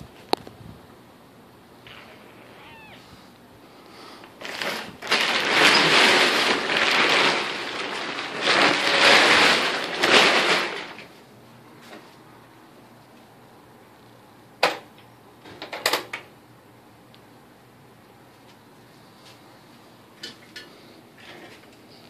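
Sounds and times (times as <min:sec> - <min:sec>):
plastic tarp rustling and crinkling: 0:04.2 - 0:12.2.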